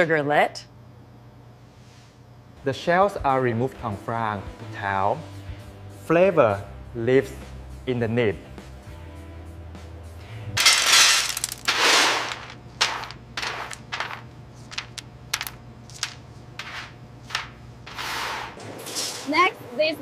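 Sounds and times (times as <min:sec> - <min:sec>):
small pieces clicking and rattling: 0:10.6 - 0:16.7.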